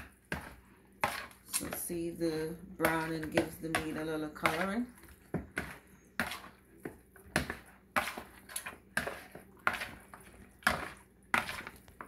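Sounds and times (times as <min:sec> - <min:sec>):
fork scraping against a bowl: 0:05.6 - 0:06.6, 0:07.4 - 0:12.0.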